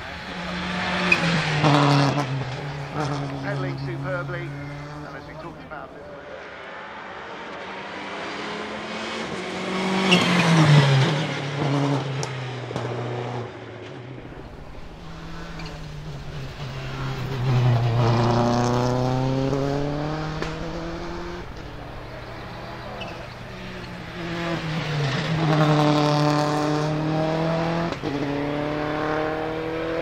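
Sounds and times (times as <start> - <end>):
rally car engine running hard: 0.0 - 13.4, 14.2 - 30.0.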